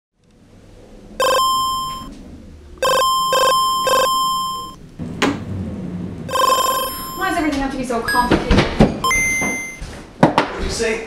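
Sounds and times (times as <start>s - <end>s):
phone alert bell tone: 1.2s - 2.1s, 2.8s - 4.8s, 6.3s - 7.4s, 8.1s - 8.3s, 9.0s - 9.8s.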